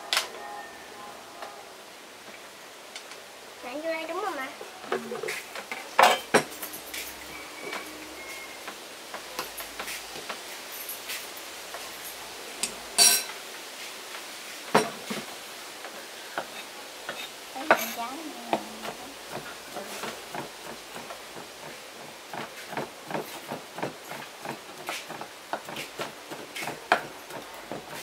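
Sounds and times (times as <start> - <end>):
steady hiss: 0.0 - 28.0
utensils clattering: 4.9 - 13.4, 16.4 - 28.0
utensils clinking against dishes: 4.9 - 13.4, 16.4 - 21.7.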